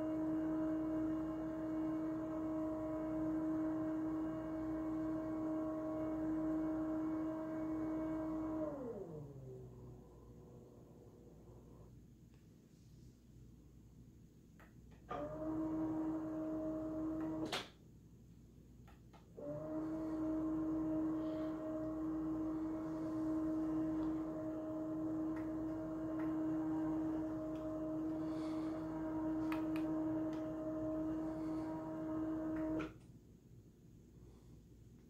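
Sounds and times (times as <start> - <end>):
roller motor humming: 19.4 - 33.0.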